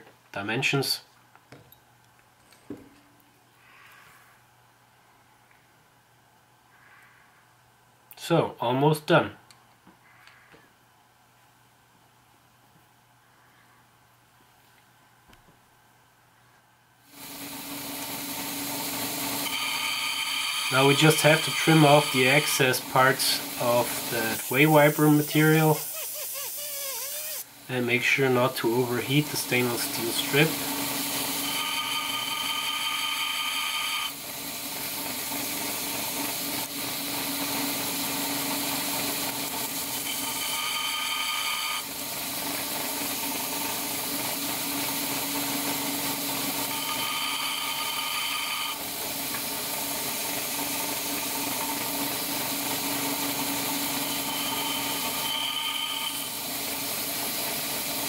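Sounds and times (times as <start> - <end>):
high grinding whine: 17.1 - 26.0, 26.6 - 58.0
belt sander running: 17.1 - 58.0.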